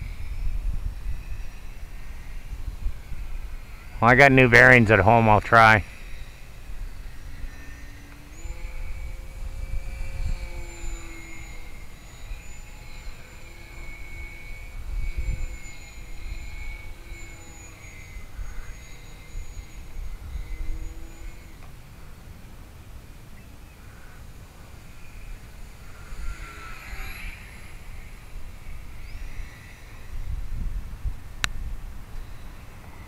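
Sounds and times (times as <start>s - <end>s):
wind rumble on microphone: 0.0s - 22.2s, 24.7s - 33.0s
electric motor and propeller whining: 0.0s - 33.0s.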